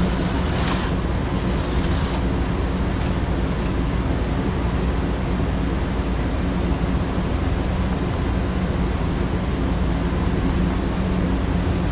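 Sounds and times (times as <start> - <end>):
slot cars humming on track: 0.0 - 5.0.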